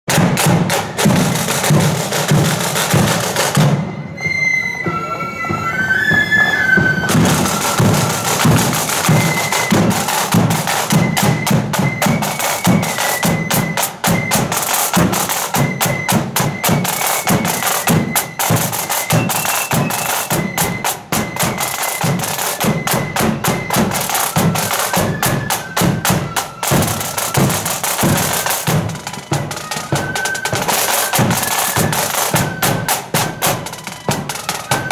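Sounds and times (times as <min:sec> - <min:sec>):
side drums and bass drum: 0:00.1 - 0:03.9, 0:06.8 - 0:34.9
flutes playing piping tune: 0:00.6 - 0:34.9.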